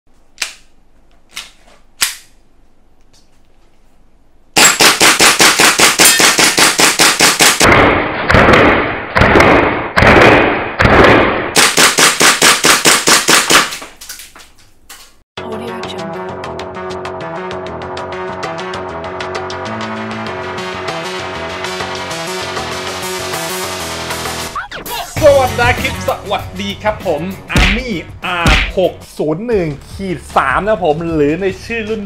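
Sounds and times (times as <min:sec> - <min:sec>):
airsoft pistol rapid fire: 0:04.6 - 0:13.8.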